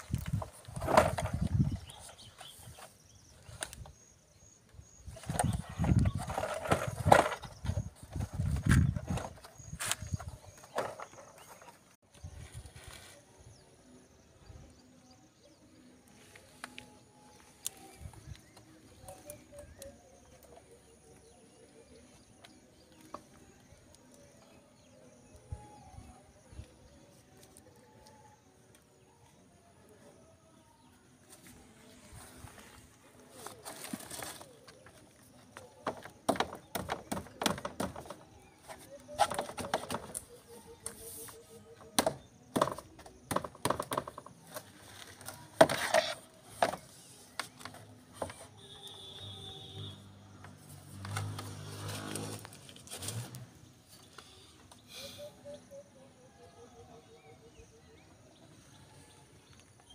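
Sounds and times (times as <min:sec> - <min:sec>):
plastic gutter sections knocking: 0:35.8 - 0:38.3.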